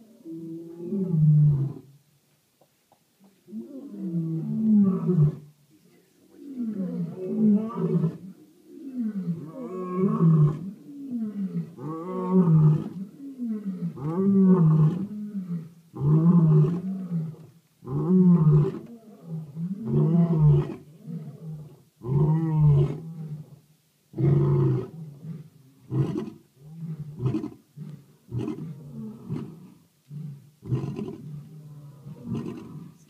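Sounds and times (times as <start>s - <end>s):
lion roaring and grunting: 8.9s - 23.5s, 24.2s - 33.0s.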